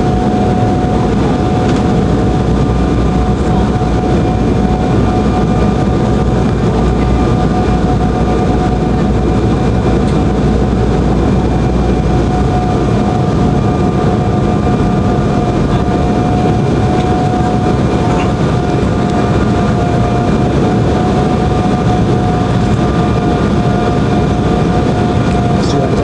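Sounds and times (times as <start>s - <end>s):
jet engine roar in cabin: 0.0s - 26.0s
steady whine: 0.0s - 26.0s.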